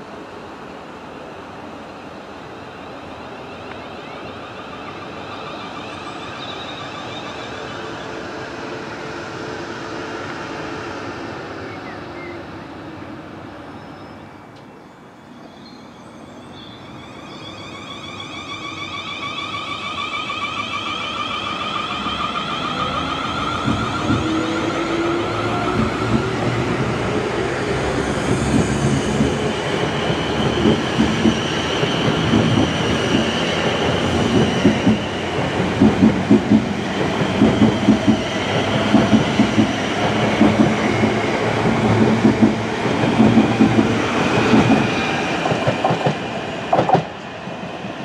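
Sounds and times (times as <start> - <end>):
train rumbling on tracks: 0.0 - 48.0
train traction motors whining: 14.5 - 47.3
train wheel clatters: 28.2 - 47.3.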